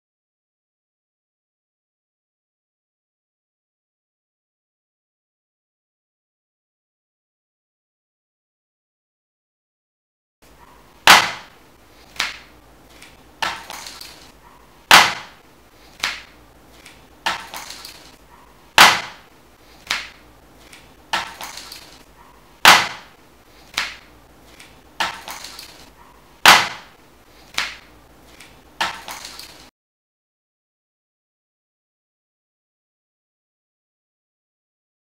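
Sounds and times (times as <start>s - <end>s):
sharp percussive impacts: 11.0s - 11.6s, 14.9s - 15.4s, 18.8s - 20.2s, 22.6s - 24.0s, 26.4s - 27.0s.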